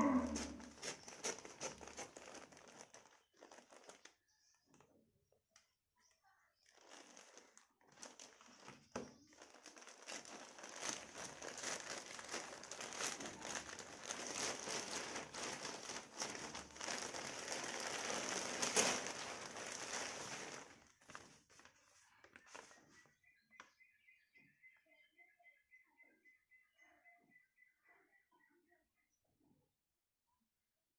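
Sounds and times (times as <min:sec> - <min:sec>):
plastic bag crinkling: 0:00.0 - 0:04.4, 0:06.6 - 0:22.9.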